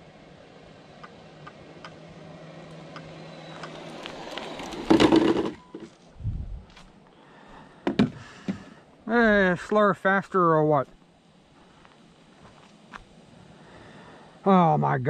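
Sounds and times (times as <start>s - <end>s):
electric rc car motor and tyres: 0.0s - 6.2s
quiet ticks: 2.6s - 4.2s
faint hiss: 5.9s - 15.0s.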